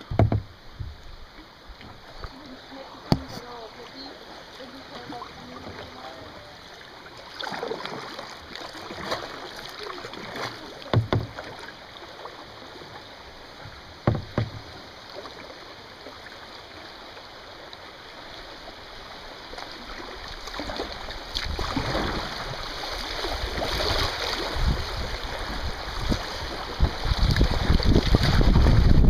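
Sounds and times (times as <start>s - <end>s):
loud thumps: 0.0s - 1.0s, 10.9s - 11.4s, 14.0s - 14.7s
paddle strokes splashing: 0.0s - 29.0s
river current rushing: 0.0s - 29.0s.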